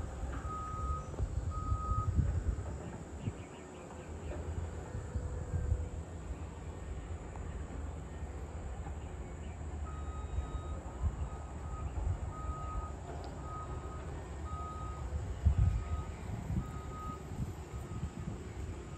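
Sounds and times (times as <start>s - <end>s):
reversing alarm beeping: 0.1s - 2.3s, 9.8s - 18.9s.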